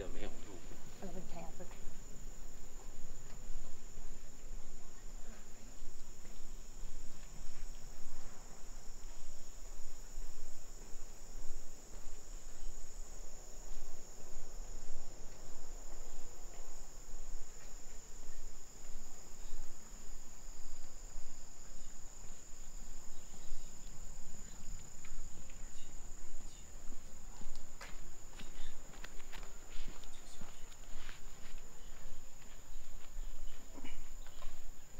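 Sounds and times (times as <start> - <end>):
insect chorus: 0.0 - 34.9
footsteps: 0.3 - 12.7, 24.6 - 34.9.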